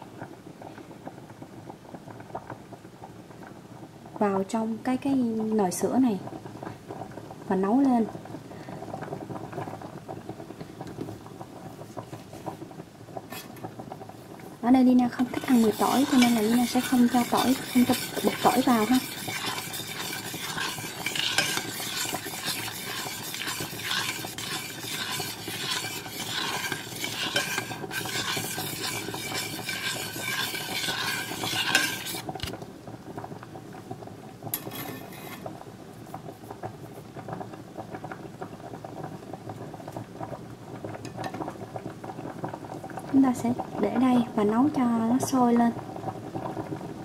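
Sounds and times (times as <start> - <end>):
faint steady hiss: 0.0 - 47.0
metal spoon stirring in a pot: 13.3 - 13.6, 14.9 - 32.5, 34.5 - 35.5.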